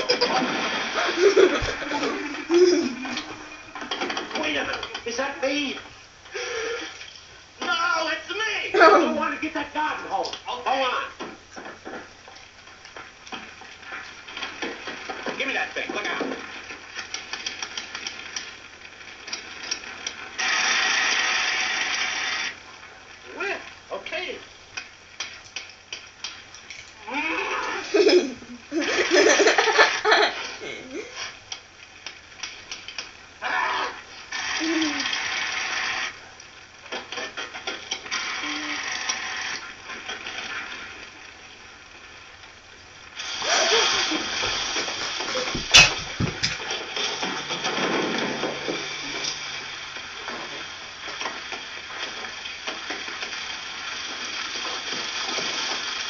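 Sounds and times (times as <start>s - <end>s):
loud hissing rush: 0.0s - 3.5s, 43.1s - 47.0s
fire extinguisher spraying hiss: 43.2s - 46.4s.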